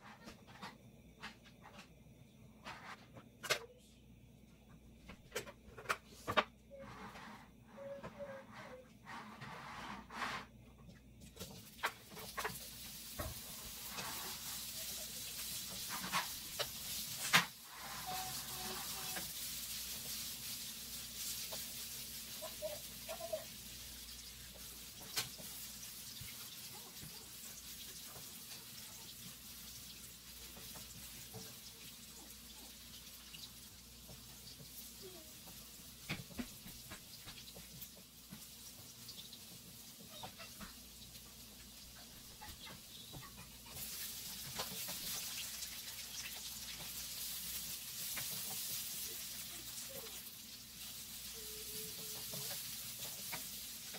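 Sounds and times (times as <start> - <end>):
sausage frying in hot oil: 11.1 - 53.9.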